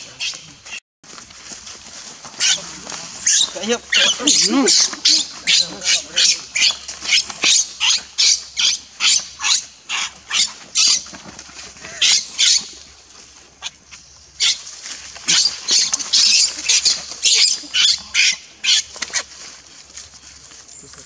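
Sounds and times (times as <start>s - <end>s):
infant monkey screaming: 2.4s - 2.6s, 3.2s - 11.1s, 11.8s - 12.7s, 14.4s - 14.6s, 15.3s - 19.3s.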